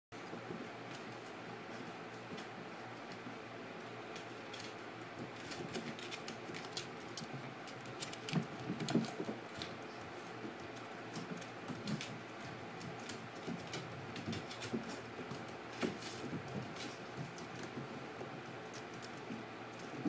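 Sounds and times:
dog claws clicking on wooden floor: 4.1s - 20.0s.

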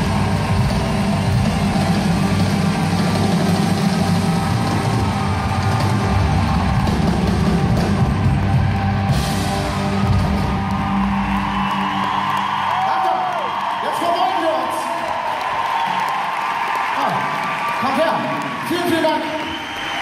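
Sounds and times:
pop-rock band playing: 0.0s - 13.0s.

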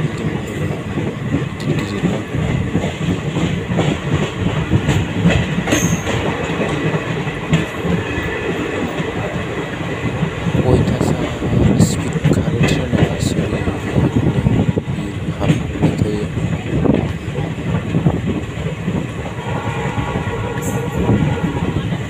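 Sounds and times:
wheels clicking over rail joints: 0.0s - 19.4s
rumble of train wheels on rails: 0.0s - 22.0s.

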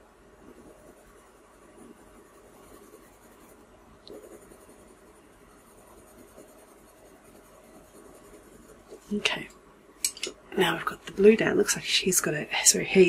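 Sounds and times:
pencil scratching on paper: 0.4s - 9.4s.

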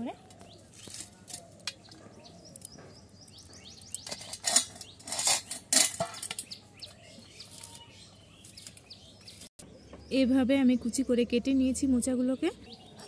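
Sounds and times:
faint birds chirping: 0.0s - 13.0s
steel plate clinking and scraping: 3.8s - 6.6s.

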